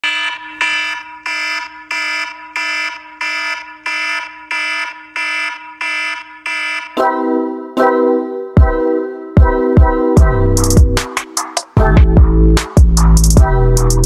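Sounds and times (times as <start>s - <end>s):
alarm beeping: 0.0s - 7.6s.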